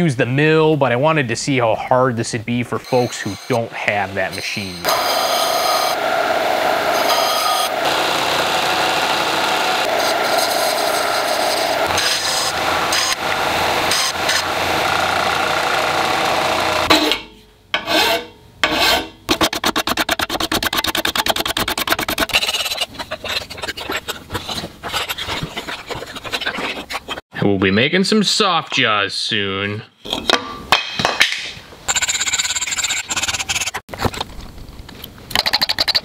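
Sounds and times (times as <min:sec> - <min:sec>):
disc sander grinding metal: 0:02.8 - 0:16.9
hand file on brass: 0:21.4 - 0:27.2.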